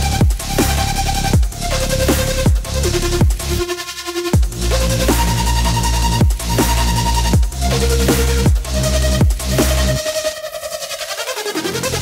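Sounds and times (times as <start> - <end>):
electronic music: 0.0 - 12.0.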